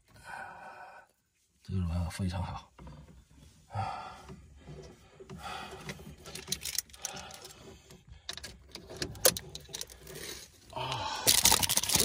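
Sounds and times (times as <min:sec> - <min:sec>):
pliers clicking and rattling: 0:06.3 - 0:07.5, 0:08.3 - 0:10.2, 0:11.3 - 0:12.0.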